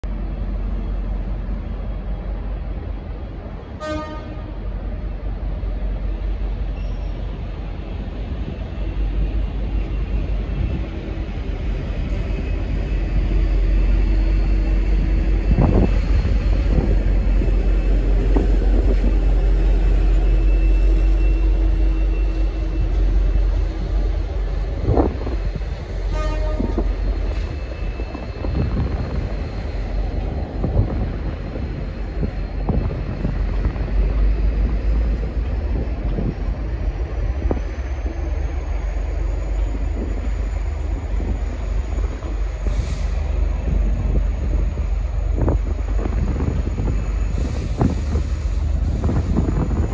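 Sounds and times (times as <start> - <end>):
diesel locomotive rumbling: 0.0 - 49.9
locomotive toot: 3.8 - 4.7, 25.9 - 29.0.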